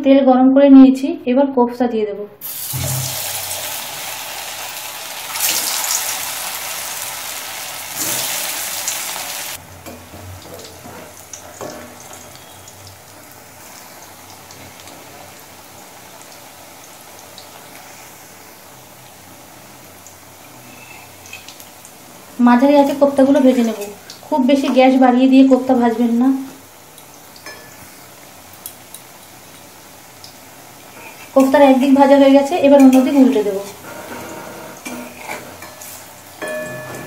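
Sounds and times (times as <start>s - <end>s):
oil sizzling in a wok: 2.4s - 37.0s.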